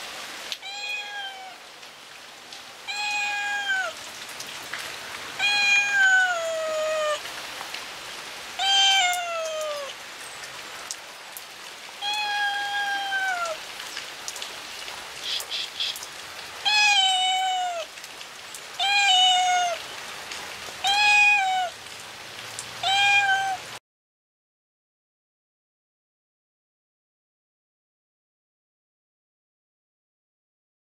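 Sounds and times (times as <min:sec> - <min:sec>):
rain pattering: 0:00.0 - 0:23.8
cat meowing: 0:00.6 - 0:01.6, 0:02.9 - 0:04.0, 0:05.4 - 0:07.2, 0:08.6 - 0:10.0, 0:12.0 - 0:13.6, 0:16.6 - 0:17.9, 0:18.8 - 0:19.8, 0:20.8 - 0:21.8, 0:22.8 - 0:23.8.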